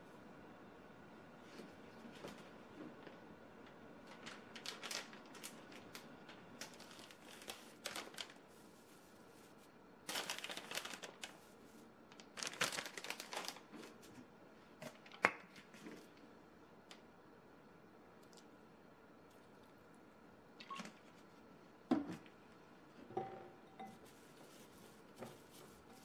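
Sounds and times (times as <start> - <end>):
dry papery rustling: 4.0 - 14.1, 24.0 - 26.0.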